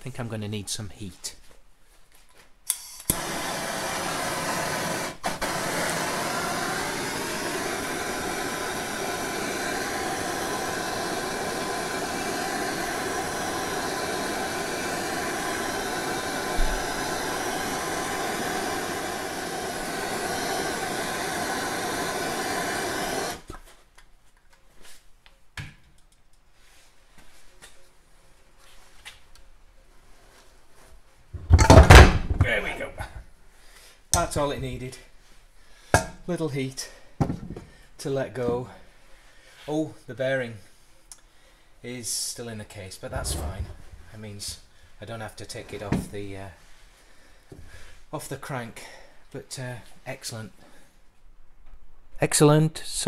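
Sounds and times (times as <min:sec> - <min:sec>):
torch ignition click: 0:02.7 - 0:23.5
gas torch hissing: 0:02.7 - 0:23.6, 0:43.0 - 0:44.7.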